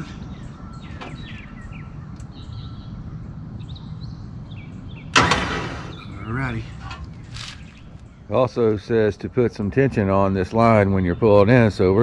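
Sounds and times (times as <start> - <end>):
low outdoor rumble: 0.0 - 12.0
small birds chirping: 0.0 - 12.0
sudden loud noise: 5.1 - 6.2.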